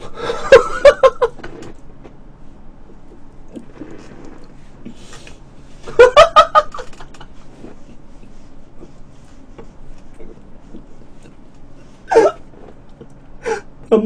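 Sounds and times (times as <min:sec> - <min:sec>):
man laughing: 0:00.0 - 0:01.4, 0:05.9 - 0:07.3.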